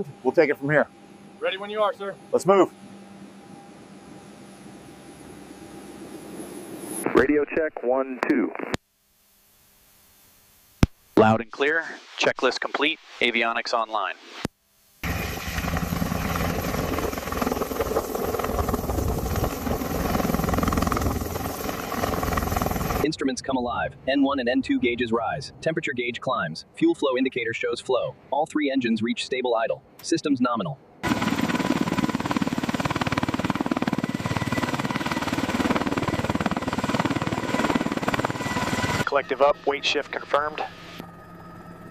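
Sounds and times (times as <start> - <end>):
turbine engine whine: 0.0 - 7.3, 15.0 - 24.0, 31.0 - 41.9
helicopter rotor blades beating: 15.0 - 23.1, 31.0 - 41.9.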